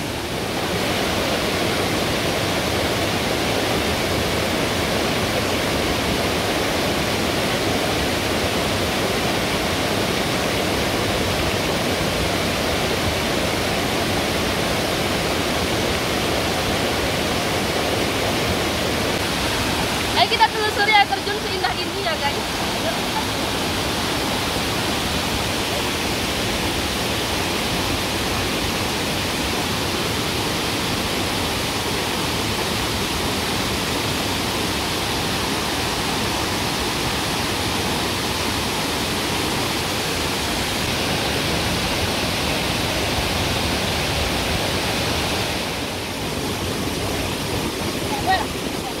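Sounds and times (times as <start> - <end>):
waterfall pouring: 0.0 - 49.0.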